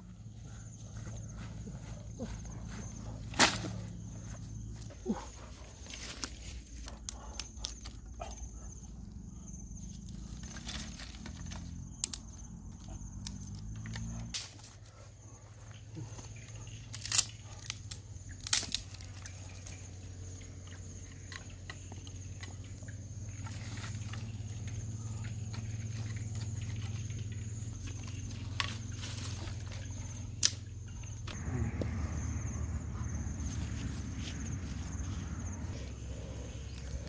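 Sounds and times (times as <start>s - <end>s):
sticks snapping and clattering: 3.3s - 3.8s, 5.8s - 8.0s, 10.3s - 14.8s, 16.8s - 19.8s, 20.6s - 24.3s, 27.8s - 31.4s.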